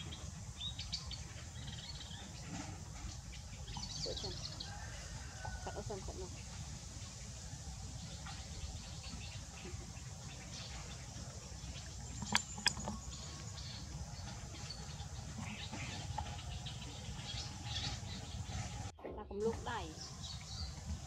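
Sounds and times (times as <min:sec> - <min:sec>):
sharp clicks: 0:12.2 - 0:13.0.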